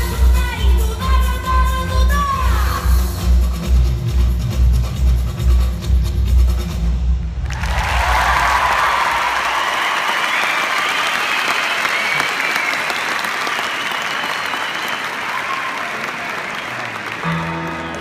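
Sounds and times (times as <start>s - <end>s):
audience applauding: 7.4s - 18.0s.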